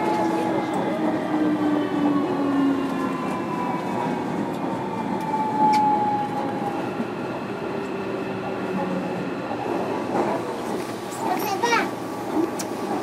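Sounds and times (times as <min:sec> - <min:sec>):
wheels rumbling on rail: 0:00.0 - 0:13.0.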